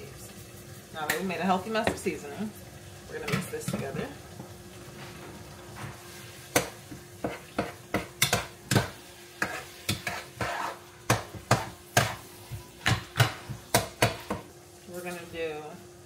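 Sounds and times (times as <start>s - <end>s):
meat sizzling: 0.0s - 16.0s
utensil scraping a pot: 6.6s - 13.3s.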